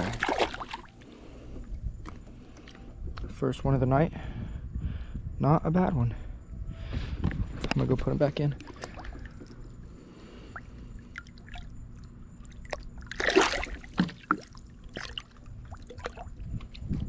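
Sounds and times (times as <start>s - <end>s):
fish splashing: 0.0s - 1.0s, 10.5s - 16.4s
water dripping and lapping: 0.0s - 2.8s, 8.5s - 17.0s.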